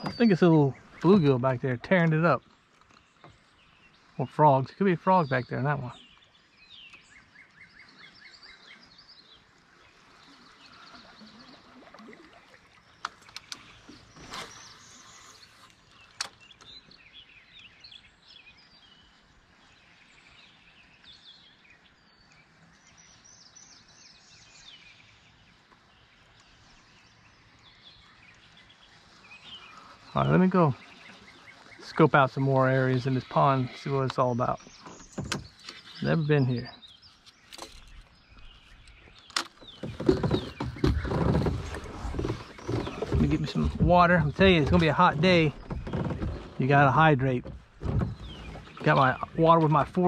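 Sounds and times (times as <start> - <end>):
birds chirping and singing: 0.0 - 9.5, 26.0 - 50.0.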